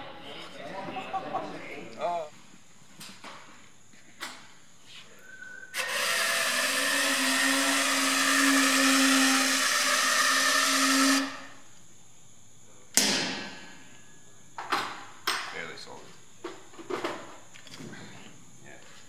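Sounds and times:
electric motors whining: 5.7s - 11.7s
sharp knock: 13.0s - 13.6s.

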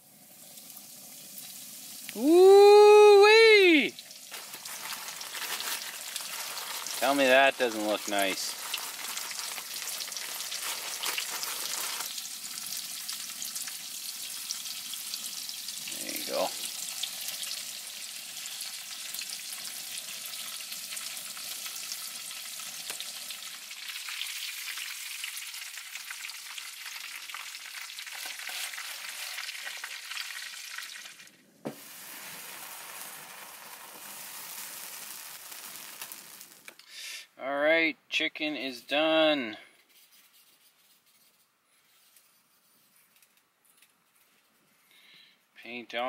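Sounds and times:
chicken frying in oil: 0.0s - 36.8s.

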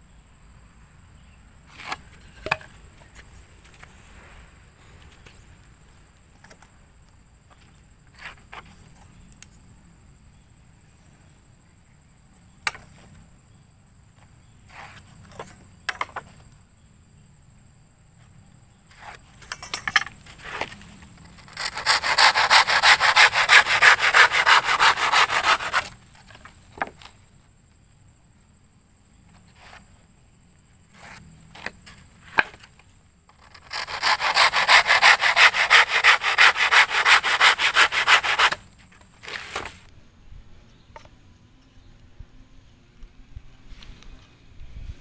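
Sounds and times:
hand saw cutting wood: 20.4s - 26.0s, 33.4s - 38.6s.

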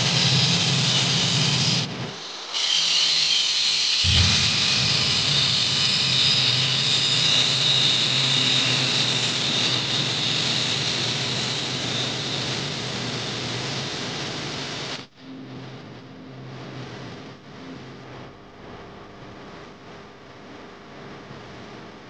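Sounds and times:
angle grinder cutting metal: 0.0s - 12.7s.

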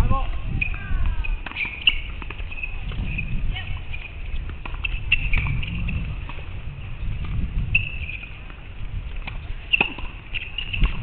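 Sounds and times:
wind rumbling on microphone: 0.0s - 11.0s
tennis ball bouncing and struck: 1.4s - 3.2s, 3.8s - 6.5s, 7.2s - 11.0s.

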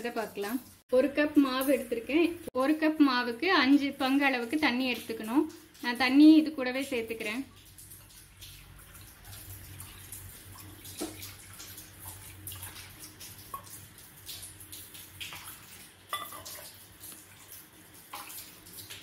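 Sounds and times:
water pouring and splashing: 0.0s - 19.0s
metal cup clinking against pot: 16.1s - 16.6s.

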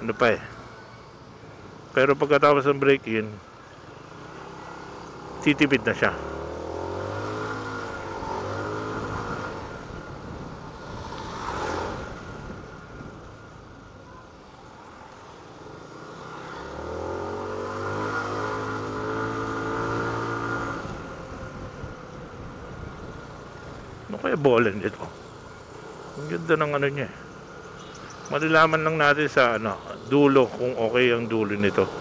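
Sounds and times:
scooter engine revving: 4.2s - 12.7s, 15.8s - 22.0s.

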